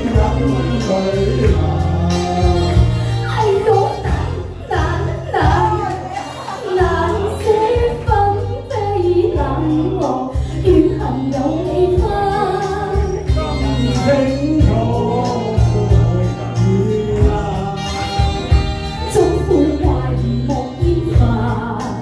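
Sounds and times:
backing track with bass line: 0:00.0 - 0:22.0
woman singing into microphone: 0:00.0 - 0:22.0.

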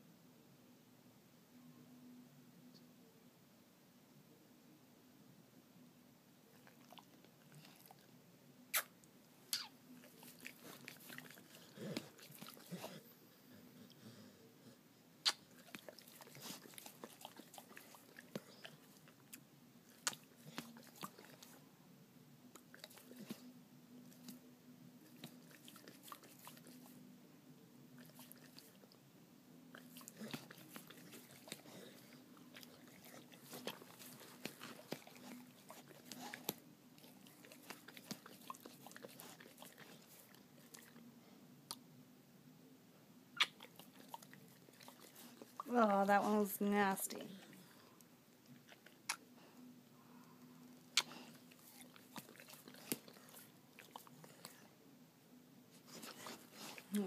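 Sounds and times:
dog licking wet smacks: 0:10.0 - 0:12.9, 0:15.3 - 0:21.6, 0:29.8 - 0:41.0, 0:51.0 - 0:54.6.

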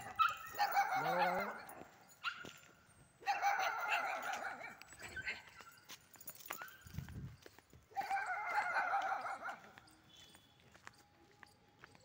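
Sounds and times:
dog whining and yelping: 0:00.0 - 0:02.4, 0:03.2 - 0:05.8, 0:07.9 - 0:09.6.

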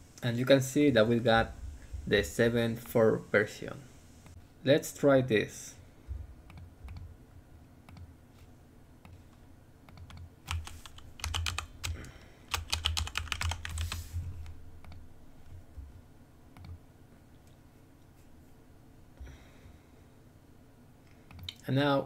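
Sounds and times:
keyboard typing clicks: 0:09.9 - 0:13.9.

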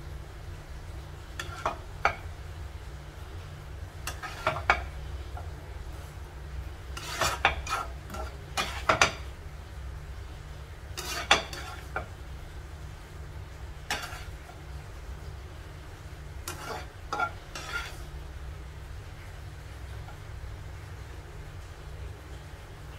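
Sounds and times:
steady low hum: 0:00.0 - 0:22.9
spatula scraping a glass pan: 0:01.4 - 0:01.8, 0:04.0 - 0:04.9, 0:06.9 - 0:09.2, 0:11.0 - 0:12.1, 0:13.9 - 0:14.6, 0:16.4 - 0:18.1.

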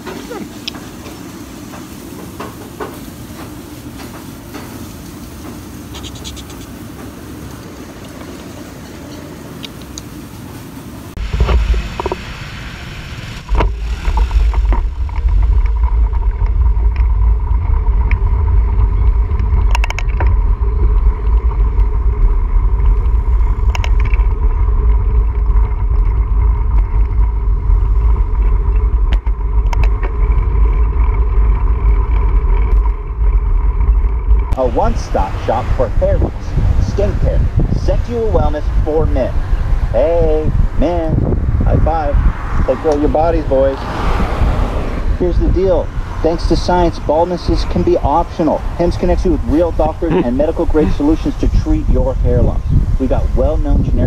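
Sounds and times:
motor scooters running: 0:11.2 - 0:52.8
wind buffeting microphone: 0:11.2 - 0:54.0.

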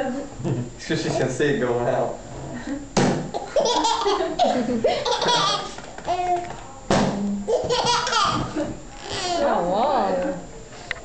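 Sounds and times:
sharp slap: 0:03.0 - 0:03.3, 0:06.9 - 0:07.2
baby laughing: 0:03.4 - 0:06.4, 0:07.5 - 0:09.4
people laughing: 0:03.6 - 0:05.8.

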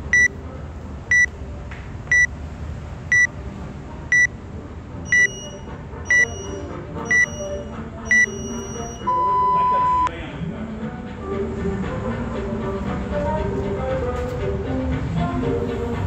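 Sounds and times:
countdown timer beeping: 0:00.0 - 0:00.3, 0:04.1 - 0:04.3, 0:05.1 - 0:10.1.

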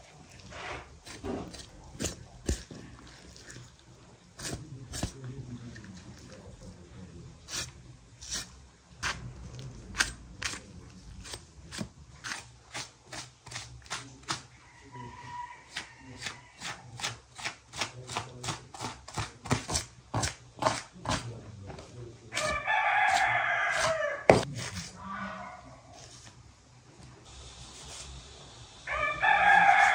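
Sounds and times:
knife slicing raw meat: 0:00.7 - 0:03.6, 0:04.4 - 0:05.2, 0:07.5 - 0:09.2, 0:09.9 - 0:14.5, 0:15.7 - 0:21.3, 0:22.4 - 0:25.0.

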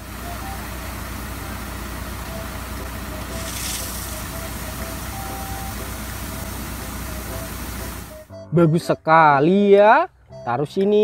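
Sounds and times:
truck engine hum: 0:00.0 - 0:10.6
hiss of water spray: 0:03.3 - 0:05.2.

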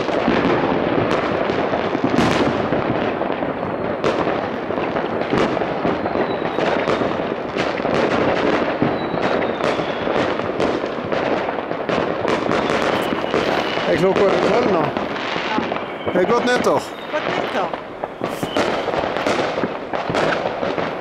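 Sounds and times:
distant fireworks bangs and crackles: 0:00.0 - 0:21.0
sharp firework reports: 0:00.0 - 0:21.0
faint high whistle gliding down: 0:08.8 - 0:10.2, 0:15.5 - 0:19.0.

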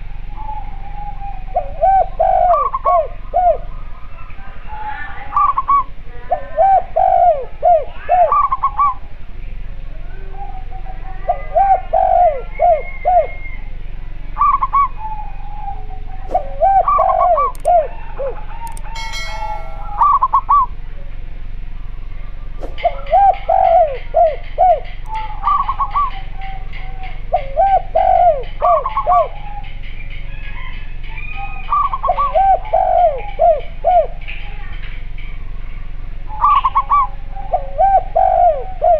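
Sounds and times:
doves cooing: 0:00.4 - 0:09.0, 0:10.0 - 0:13.5, 0:14.4 - 0:20.6, 0:22.6 - 0:34.3, 0:36.3 - 0:38.9
steady low hum: 0:13.5 - 0:29.9.

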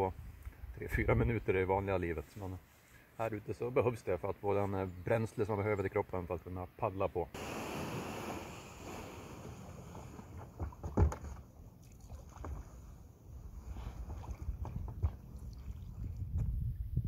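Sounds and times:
water splashing: 0:07.4 - 0:13.0, 0:13.8 - 0:16.3
knocks and scrapes on kayak hull: 0:09.7 - 0:11.6, 0:13.6 - 0:15.4.

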